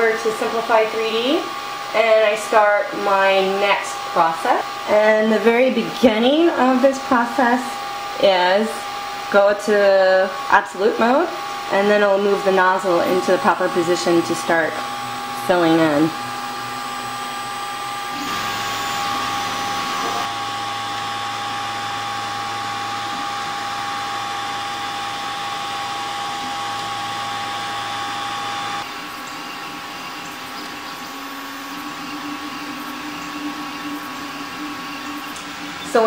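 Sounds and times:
printer fans and motors whirring: 0:00.0 - 0:36.0
steady electronic tones: 0:10.8 - 0:36.0.

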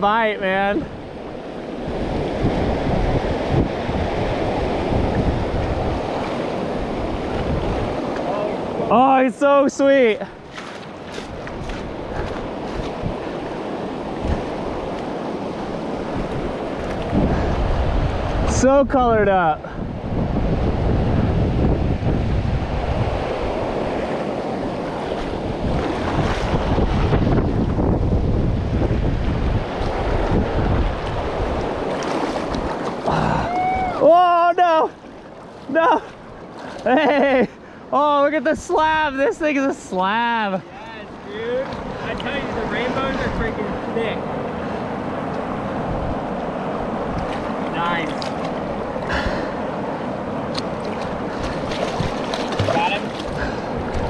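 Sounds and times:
wind buffeting microphone: 0:00.0 - 0:09.4, 0:10.1 - 0:37.8, 0:40.7 - 0:54.0
river rapids rushing: 0:38.8 - 0:54.0.

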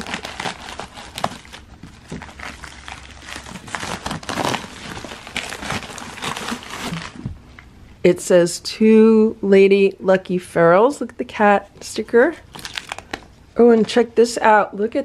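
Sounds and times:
plastic mailer crinkling: 0:00.0 - 0:07.3, 0:12.5 - 0:13.3.

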